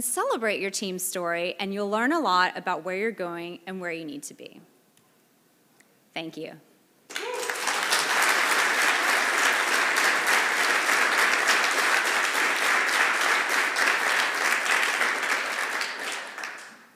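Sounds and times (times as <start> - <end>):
audience applauding: 7.1 - 16.9.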